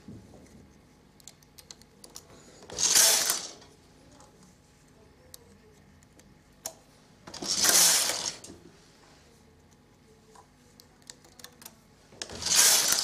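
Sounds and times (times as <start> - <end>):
knitting machine carriage rattling: 2.7 - 3.6, 7.3 - 8.5, 12.2 - 13.0.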